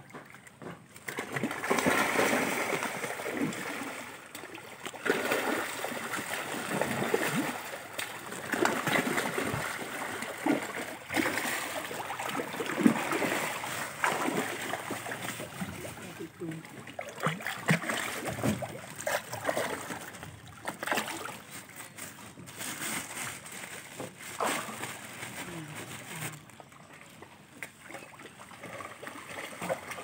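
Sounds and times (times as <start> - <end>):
fish splashing at water surface: 1.0 - 21.8.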